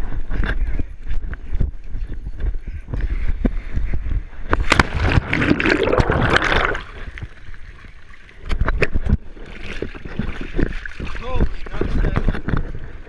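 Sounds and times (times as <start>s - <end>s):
water splashing against camera: 4.1s - 13.0s.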